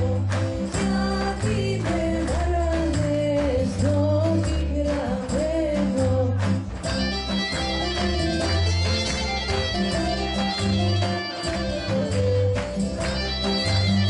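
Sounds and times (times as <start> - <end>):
woman singing: 0.0 - 6.8
live folk dance band: 0.0 - 14.0.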